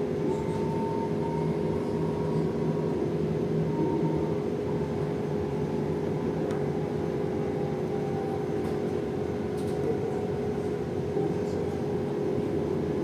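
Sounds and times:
bus cabin hum and road noise: 0.0s - 13.0s.

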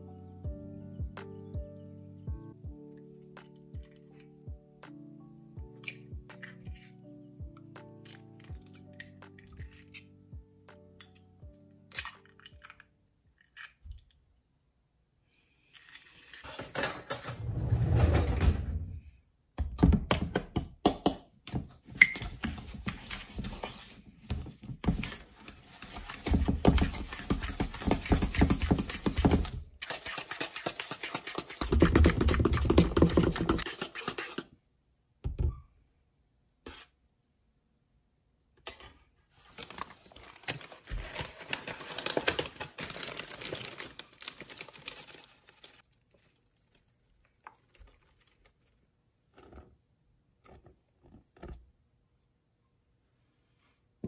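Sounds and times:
spoon beating eggs in metal bowl: 20.6s - 34.5s.

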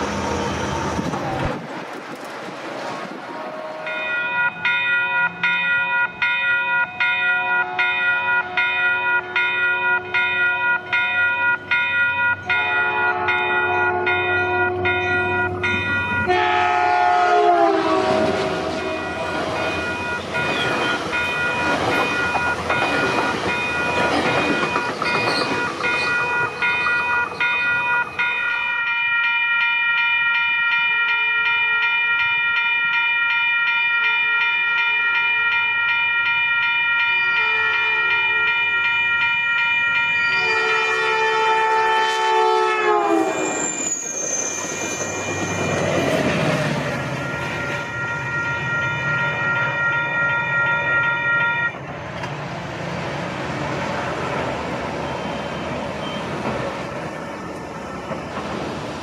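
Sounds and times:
train wheels rumbling and clattering: 0.0s - 12.6s, 17.6s - 28.4s, 43.1s - 50.0s, 51.6s - 59.0s
train horn: 3.3s - 4.3s, 7.5s - 11.0s, 12.4s - 15.5s, 16.2s - 20.0s, 37.3s - 38.7s, 40.3s - 43.6s
crossing bell ringing: 3.4s - 51.9s, 53.8s - 58.8s.

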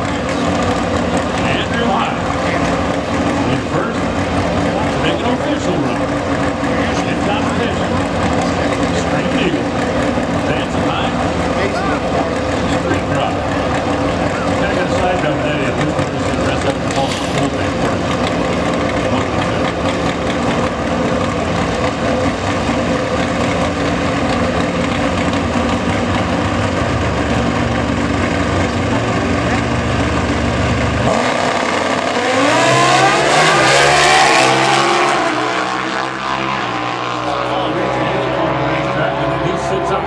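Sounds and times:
motorcycle engines revving: 0.0s - 40.0s
motorcycles accelerating away: 24.6s - 40.0s.

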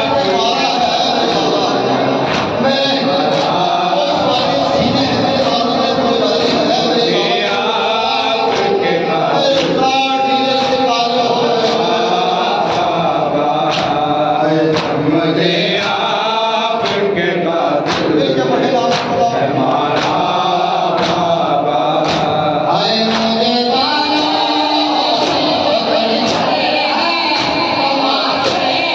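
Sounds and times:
chest-beating strikes: 0.0s - 7.2s
man chanting through microphone: 0.0s - 28.9s.

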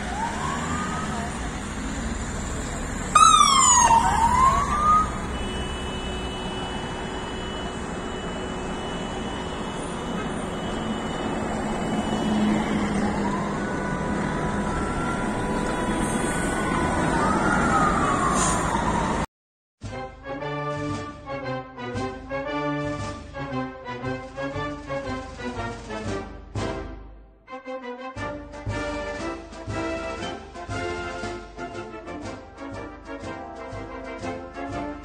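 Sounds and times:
siren wailing: 0.0s - 1.8s, 3.0s - 19.3s
passing coach engines: 0.0s - 19.3s
street traffic: 0.0s - 19.3s, 21.9s - 27.0s, 28.4s - 35.0s.

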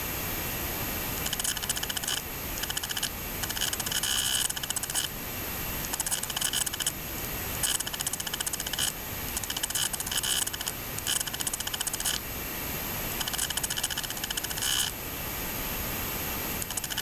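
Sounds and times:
rapid mechanical clicking: 1.2s - 5.2s, 5.8s - 7.0s, 7.6s - 12.3s, 13.2s - 15.0s, 16.6s - 17.0s.

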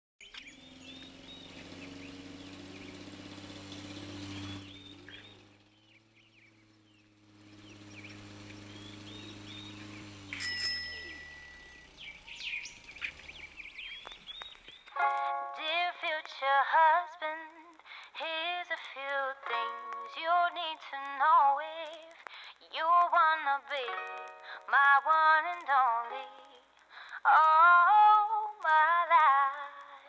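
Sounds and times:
small birds chirping: 0.2s - 15.0s
brief high tone: 10.3s - 11.9s.

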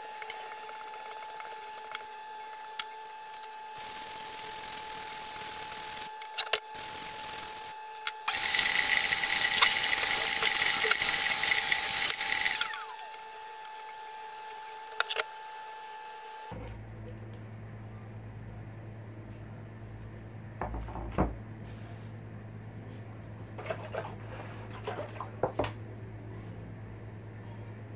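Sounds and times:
shop vacuum suction: 0.0s - 16.5s
low steady hum: 0.0s - 27.9s.

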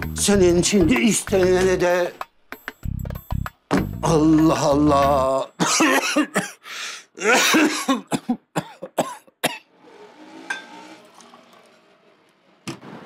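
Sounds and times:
man coughing: 5.6s - 6.6s, 7.2s - 9.7s.

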